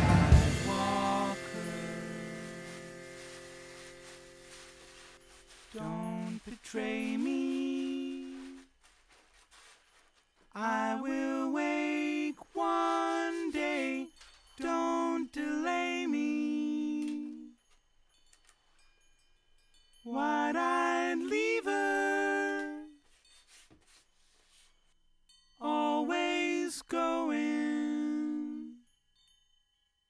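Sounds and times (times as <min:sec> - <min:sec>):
short melodic music phrases: 0:00.2 - 0:06.4.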